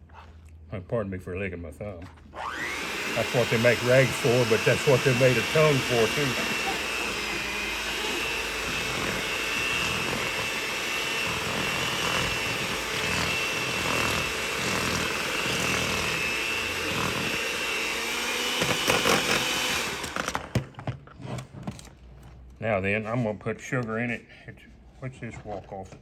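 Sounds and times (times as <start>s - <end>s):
electric hand mixer whining: 2.3s - 20.8s.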